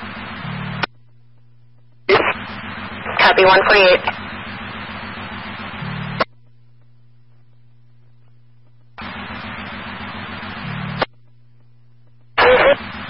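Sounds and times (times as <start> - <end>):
low steady hum: 0.0 - 13.0
radio static hiss: 0.0 - 13.0
radio squelch burst: 2.1 - 6.3, 12.4 - 13.0.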